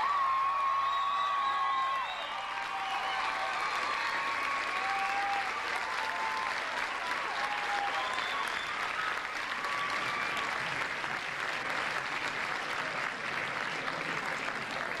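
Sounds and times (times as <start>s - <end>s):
short cheers: 0.0s - 10.8s
audience clapping: 0.0s - 15.0s.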